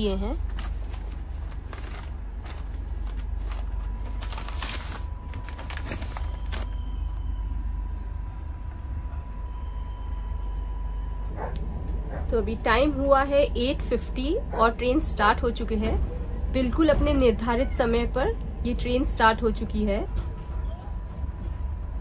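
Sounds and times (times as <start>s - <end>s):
plastic bag rustling: 0.4s - 6.8s.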